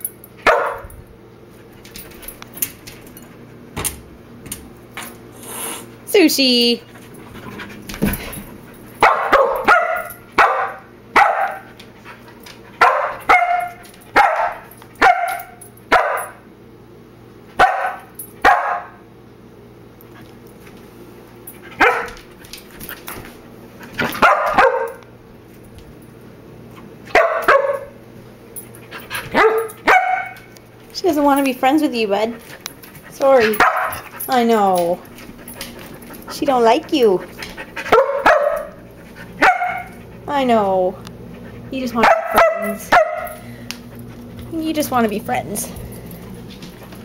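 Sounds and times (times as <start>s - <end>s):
puppy barking: 0.4s - 0.9s, 9.0s - 11.7s, 12.8s - 16.4s, 17.6s - 19.0s, 21.8s - 22.2s, 24.2s - 25.0s, 27.1s - 28.0s, 29.3s - 30.5s, 33.5s - 34.1s, 37.9s - 38.8s, 39.4s - 40.0s, 42.0s - 43.3s.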